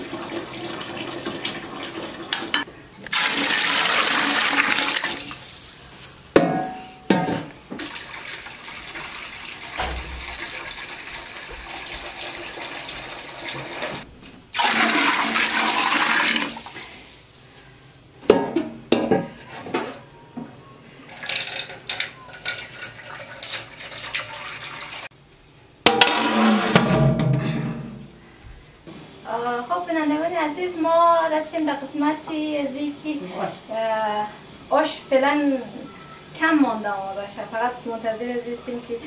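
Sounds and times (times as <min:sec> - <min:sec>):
sharp knocks: 0:09.8 - 0:10.9.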